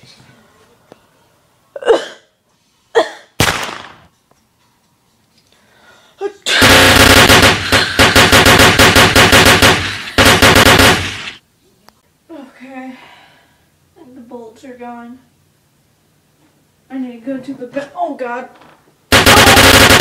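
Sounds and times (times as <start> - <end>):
machine-gun fire rattle: 3.4 - 4.1, 6.5 - 11.4, 19.1 - 20.0
loud bang: 6.5 - 11.4.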